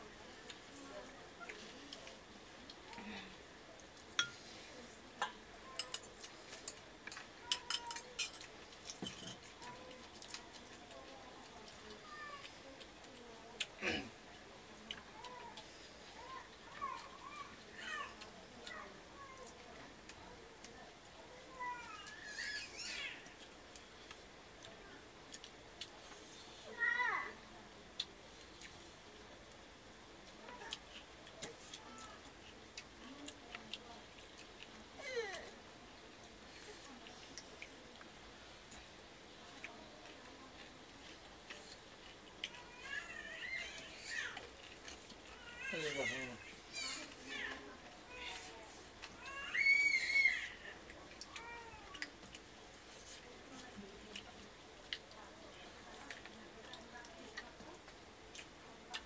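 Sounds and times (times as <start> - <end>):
fingers mixing rice on plates: 0.0 - 27.0, 27.8 - 59.0
chewing: 0.3 - 26.7, 27.8 - 59.0
metal spoon clinking on bowls: 4.2 - 4.4, 5.2 - 9.5.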